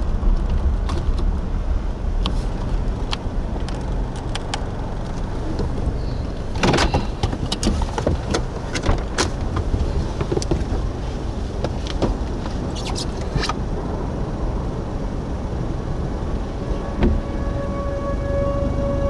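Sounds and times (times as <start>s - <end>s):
vehicle rumble: 0.0s - 19.0s
wind: 0.0s - 19.0s.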